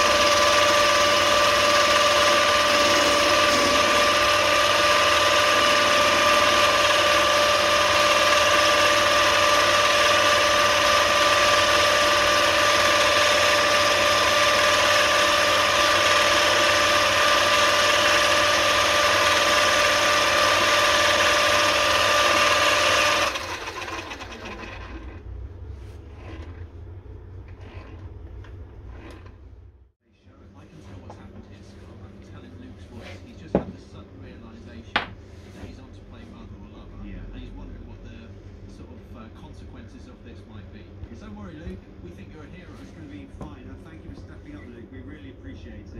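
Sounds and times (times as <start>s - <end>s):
lathe running with gear whine: 0.0s - 25.3s.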